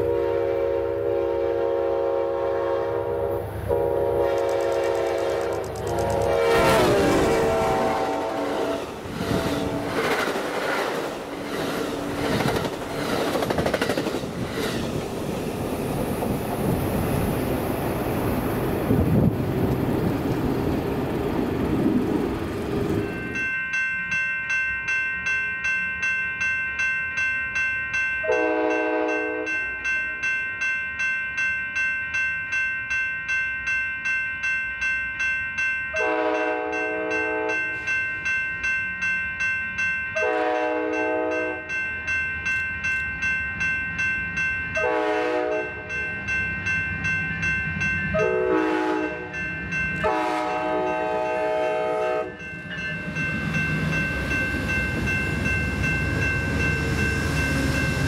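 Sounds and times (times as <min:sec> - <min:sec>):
locomotive air horn blasts: 0:00.0 - 0:10.0, 0:28.3 - 0:29.5, 0:36.0 - 0:37.6, 0:40.2 - 0:41.6, 0:44.8 - 0:45.7, 0:48.2 - 0:49.4, 0:50.0 - 0:52.3
crossing warning bell ringing: 0:00.0 - 0:14.5, 0:15.2 - 0:58.0
train rumble: 0:01.0 - 0:23.5, 0:44.8 - 0:58.0.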